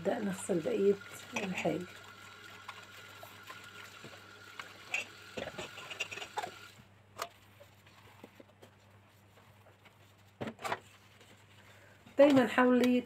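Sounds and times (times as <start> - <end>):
tap water running: 0.0 - 6.8
metal pots clinking: 1.2 - 1.9, 4.8 - 6.7.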